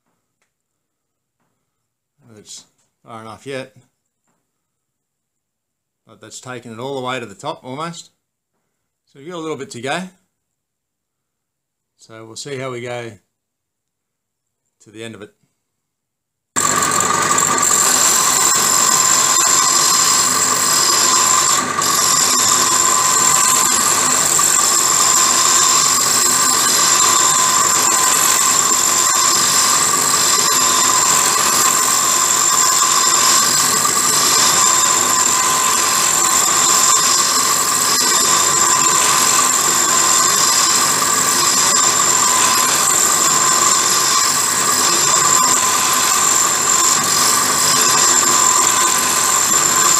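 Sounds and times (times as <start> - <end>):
drill whining: 16.6 - 49.9.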